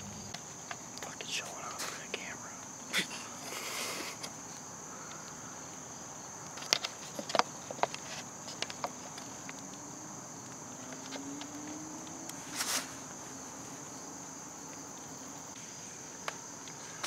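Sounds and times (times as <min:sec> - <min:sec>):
faint rising hum: 0:00.0 - 0:02.6
insect chorus buzzing: 0:00.0 - 0:17.0.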